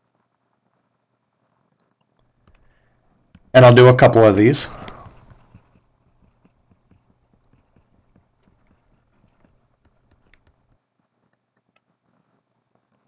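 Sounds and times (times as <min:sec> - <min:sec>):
stylus tapping on screen: 0:03.3 - 0:10.8.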